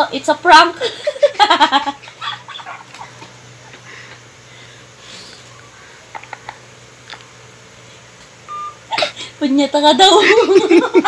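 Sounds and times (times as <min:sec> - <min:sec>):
person sniffing: 0:04.0 - 0:06.1.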